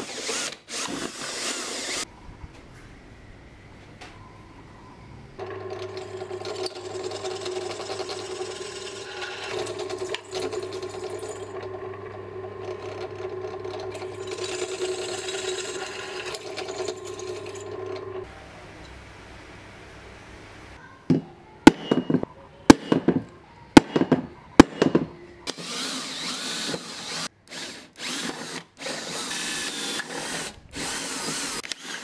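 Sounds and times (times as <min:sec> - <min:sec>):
drill bit scraping metal: 0:05.4 - 0:11.7, 0:12.5 - 0:18.2
drill press motor humming: 0:05.4 - 0:18.3.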